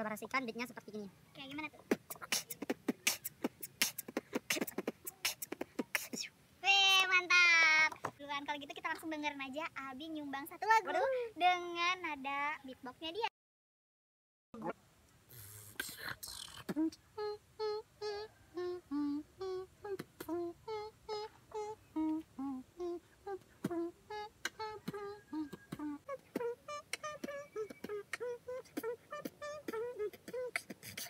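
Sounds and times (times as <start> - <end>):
man beatboxing with hummed tune: 1.6 - 6.3, 15.3 - 31.0.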